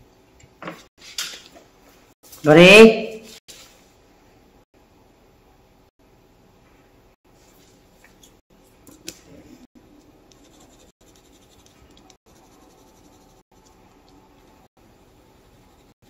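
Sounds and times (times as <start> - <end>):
pencil scratching on paper: 10.3 - 16.0.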